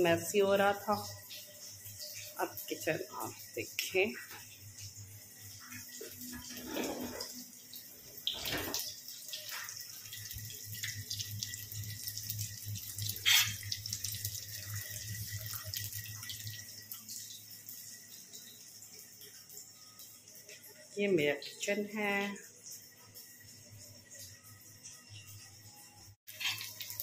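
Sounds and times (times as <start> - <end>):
patties sizzling in oil: 0.0 - 16.8, 26.3 - 27.0.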